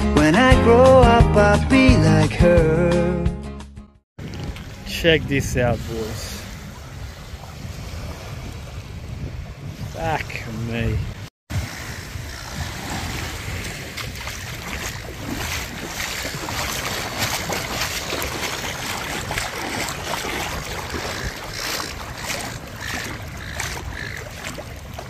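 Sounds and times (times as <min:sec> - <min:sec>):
wind rushing on microphone: 0:04.2 - 0:25.0
water splashing and spraying: 0:11.5 - 0:25.0.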